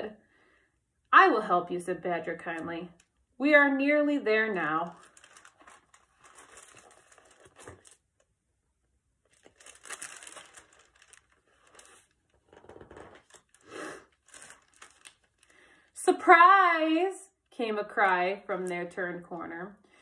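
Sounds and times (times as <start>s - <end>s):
paper pages rustling: 4.8s - 8.1s, 9.3s - 15.6s.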